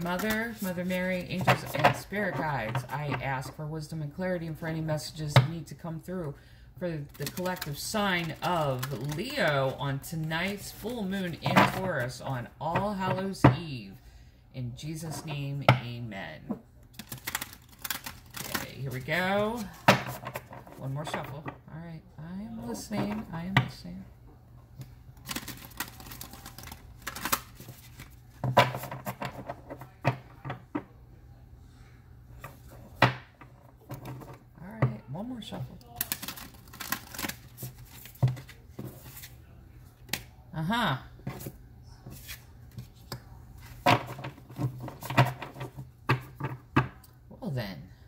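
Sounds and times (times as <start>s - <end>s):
cards being shuffled: 0.0s - 2.9s, 7.0s - 11.9s, 16.9s - 20.8s, 25.2s - 30.2s, 36.0s - 39.4s, 42.1s - 46.5s.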